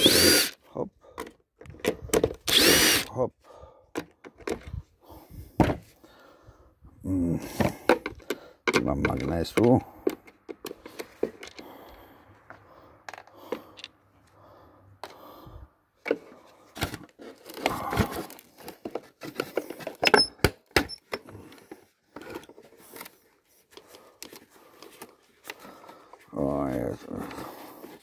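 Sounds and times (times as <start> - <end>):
hard plastic knocks and clicks: 1.2 - 2.5, 7.6 - 11.6.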